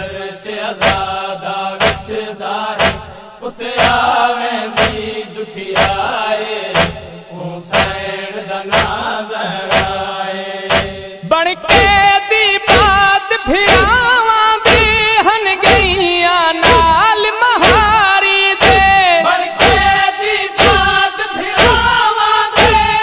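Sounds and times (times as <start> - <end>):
voices chanting a lament: 0.0 - 23.0
sharp beat: 0.8 - 1.1, 1.8 - 2.2, 2.8 - 3.2, 3.8 - 4.1, 4.8 - 5.2, 5.8 - 6.1, 6.8 - 7.1, 7.7 - 8.0, 8.7 - 9.0, 9.7 - 10.0, 10.7 - 11.0, 11.7 - 17.0, 17.6 - 18.0, 18.6 - 19.0, 19.6 - 20.0, 20.6 - 22.0, 22.6 - 23.0.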